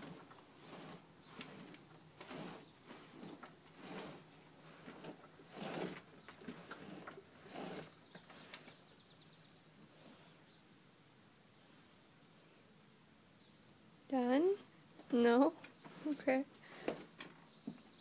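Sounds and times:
horse rubbing against wheelbarrow: 0.0s - 8.9s, 15.1s - 17.2s.

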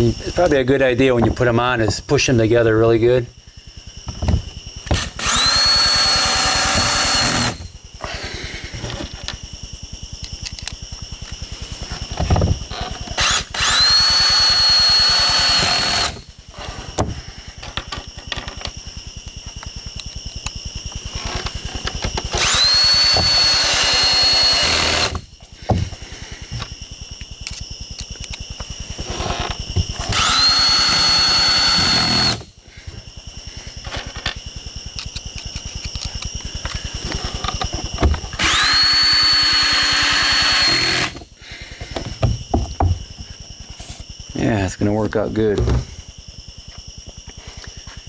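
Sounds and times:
power drill driving a screw: 5.0s - 8.3s, 13.2s - 16.2s, 22.4s - 25.2s, 30.1s - 32.4s, 38.4s - 41.2s.

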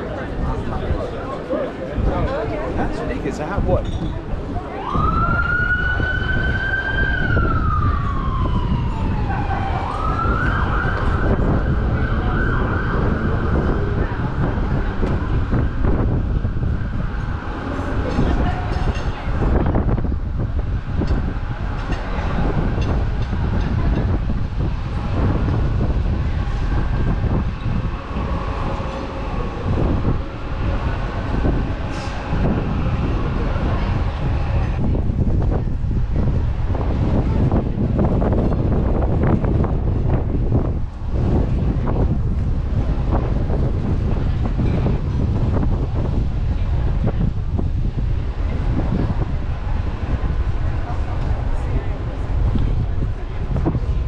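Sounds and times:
wind buffeting microphone: 0.0s - 54.0s
siren wailing: 4.7s - 17.3s.

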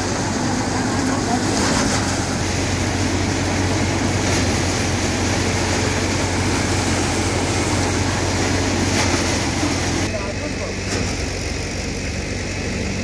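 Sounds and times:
threshing machine running: 0.0s - 13.0s.

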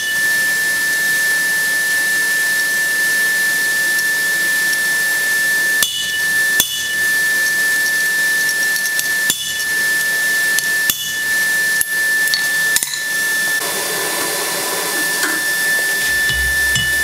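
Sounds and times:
steady hiss with high whine: 0.0s - 17.0s
hammer striking metal on anvil: 5.8s - 7.0s, 8.9s - 9.7s, 10.8s - 11.2s, 16.1s - 17.0s.

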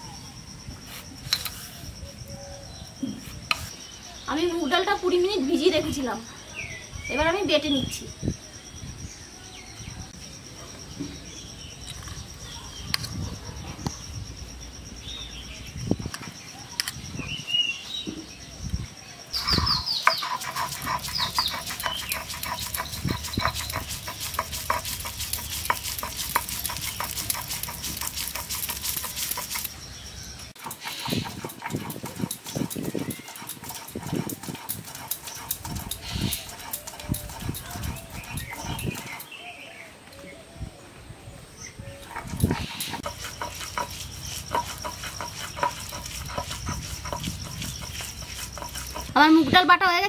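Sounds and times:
stone roller grinding on stone slab: 19.4s - 29.8s, 30.5s - 39.3s, 42.0s - 49.6s.

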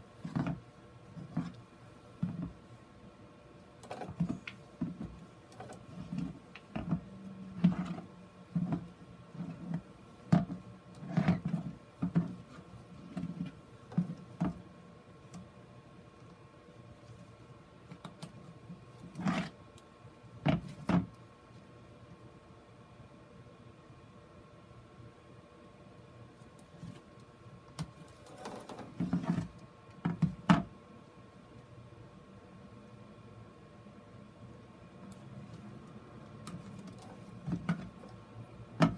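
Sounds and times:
rustling and scraping: 0.0s - 2.8s, 3.8s - 14.7s, 16.9s - 19.7s, 26.5s - 27.3s, 27.9s - 30.7s, 35.4s - 38.2s.

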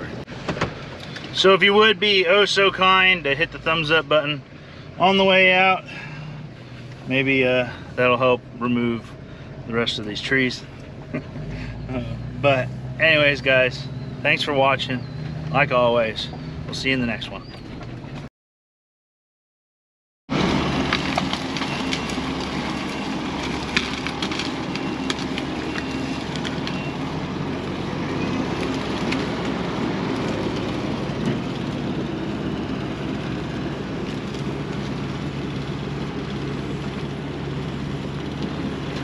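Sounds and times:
diesel engine running under load: 0.0s - 18.2s, 20.3s - 39.0s
wood cracking and splintering: 20.3s - 39.0s.

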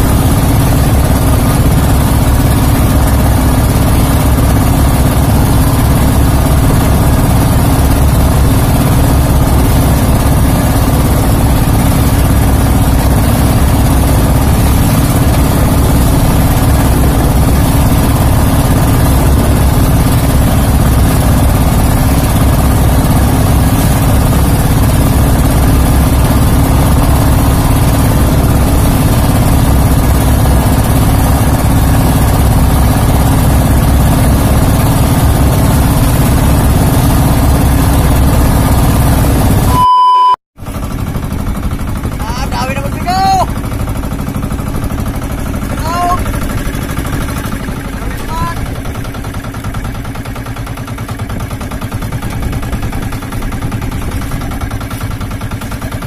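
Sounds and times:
boat engine running: 0.0s - 56.0s
high test-tone beep: 39.7s - 40.4s.

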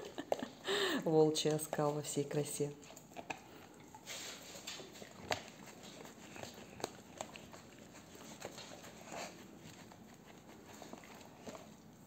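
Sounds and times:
dog licking wetly: 1.4s - 12.0s
tongue and teeth clicking on plastic: 2.7s - 12.0s.

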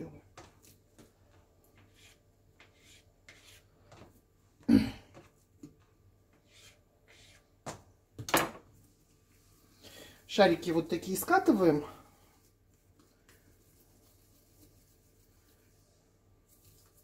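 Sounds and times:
knife scraping dough: 1.7s - 4.1s, 6.3s - 7.6s.

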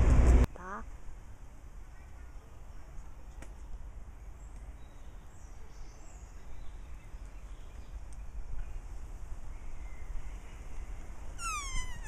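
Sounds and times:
faint bird chirps: 4.2s - 12.0s.

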